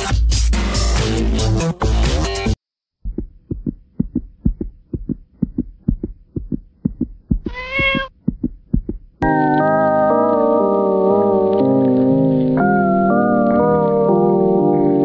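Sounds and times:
soft low thumps: 3.0s - 9.2s
cat meow: 7.4s - 8.1s.

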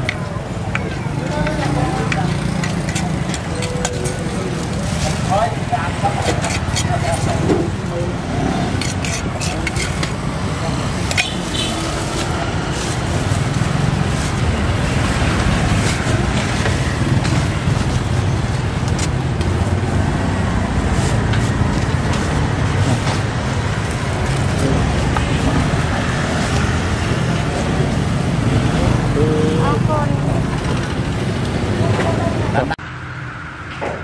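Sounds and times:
street traffic rumble: 0.0s - 34.0s
utensils and containers clicking: 8.7s - 10.3s.

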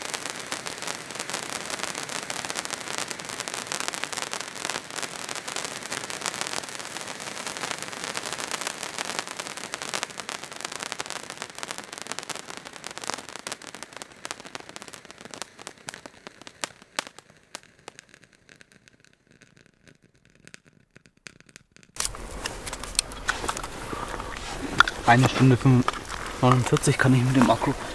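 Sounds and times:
firework fountain crackling: 0.0s - 27.9s
steady low rumble: 22.0s - 27.9s.

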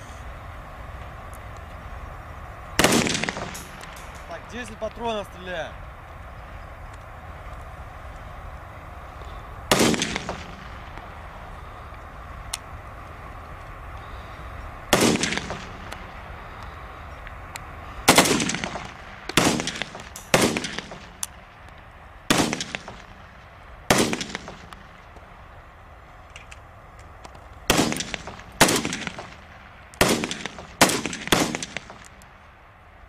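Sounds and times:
rifle shots: 2.8s - 5.5s, 9.7s - 11.3s, 14.9s - 16.2s, 18.0s - 21.4s, 22.3s - 25.1s, 27.6s - 32.3s
distant gunshots: 2.8s - 5.6s, 9.7s - 11.4s, 14.9s - 16.6s, 18.0s - 21.4s, 22.3s - 25.2s, 27.6s - 32.3s.

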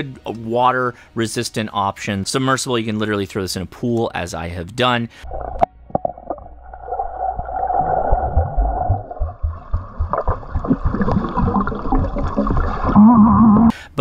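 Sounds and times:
dull knocks and sloshing underwater: 5.3s - 13.0s
underwater bubbles gurgling: 5.3s - 13.7s.

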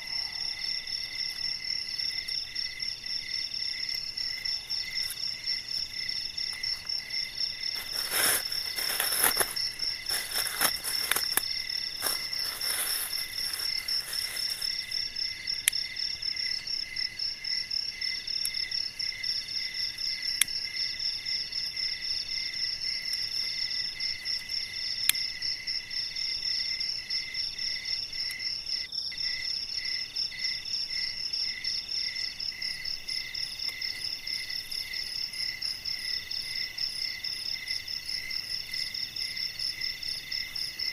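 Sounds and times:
insects trilling: 0.0s - 40.9s
bamboo sticks rustling and knocking: 5.8s - 15.1s.

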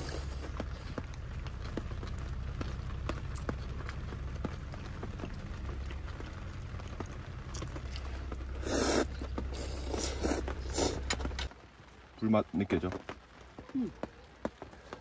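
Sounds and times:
low steady hum: 0.0s - 12.2s
noodles slurped: 7.5s - 11.4s.

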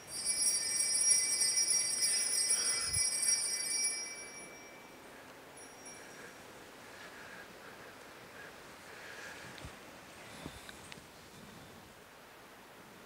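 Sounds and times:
altar bells jingling: 0.0s - 6.6s.

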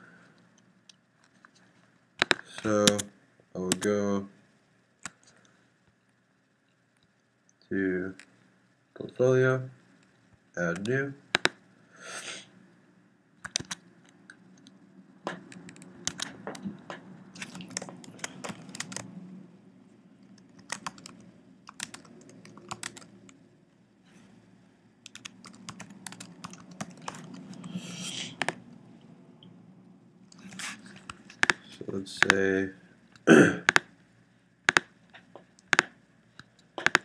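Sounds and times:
keyboard typing: 2.2s - 3.1s, 10.7s - 11.6s, 13.4s - 13.8s, 15.3s - 19.1s, 20.2s - 23.4s, 25.0s - 28.6s, 30.4s - 32.4s, 33.6s - 33.9s, 34.7s - 36.0s, 36.7s - 37.0s.

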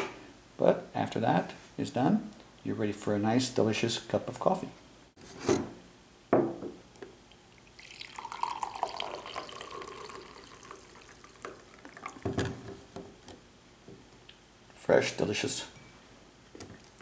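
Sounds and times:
press knocking on wooden table: 6.4s - 6.8s
coffee pouring into a mug: 7.3s - 12.8s.

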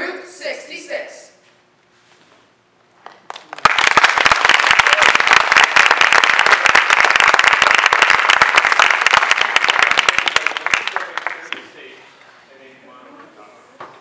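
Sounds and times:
audience applauding: 3.2s - 11.9s.

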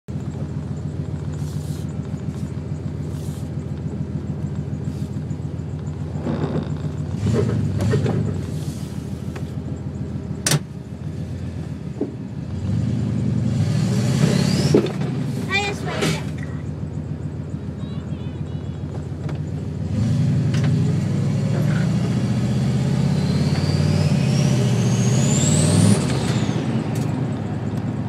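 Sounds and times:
car engine idling: 0.1s - 13.5s, 14.6s - 21.6s, 26.9s - 28.0s.

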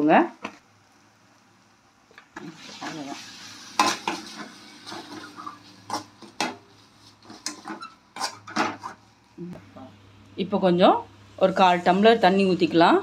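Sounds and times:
masala sizzling: 0.0s - 13.0s
ladle scraping a steel pan: 3.8s - 9.0s.

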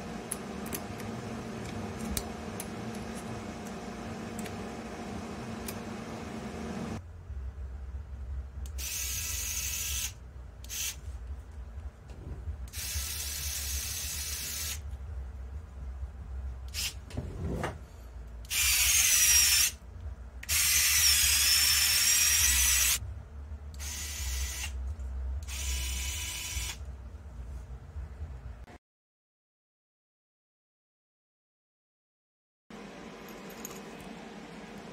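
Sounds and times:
cordless screwdriver whirring: 18.5s - 19.8s, 20.5s - 23.0s, 25.4s - 26.8s.

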